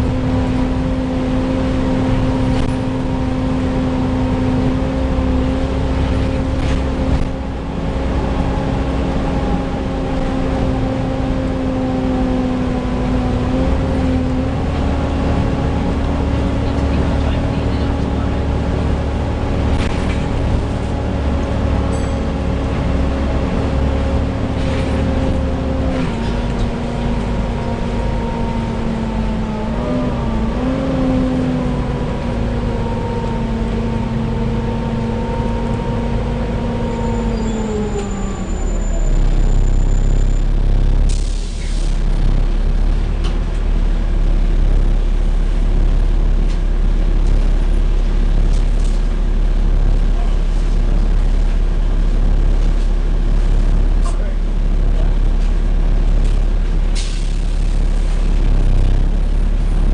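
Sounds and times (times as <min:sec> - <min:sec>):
bus engine and road rumble: 0:00.0 - 0:59.9.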